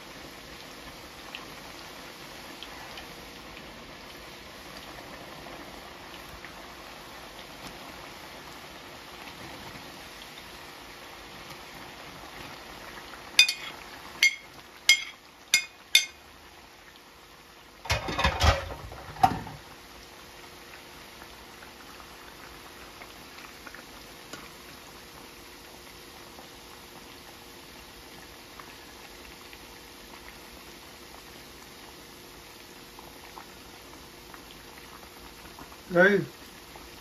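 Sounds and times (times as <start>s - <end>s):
chips deep-frying in oil: 0.7s - 16.4s, 17.8s - 19.7s, 32.8s - 37.0s
metal utensil tapping pot: 13.4s - 16.2s
clatter of stirring chips: 17.9s - 19.5s.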